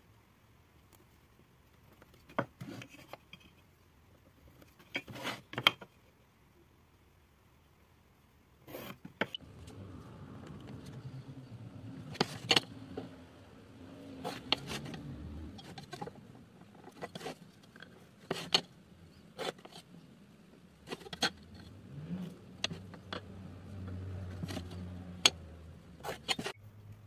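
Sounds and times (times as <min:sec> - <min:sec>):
faint low hum: 0:05.8 - 0:27.0.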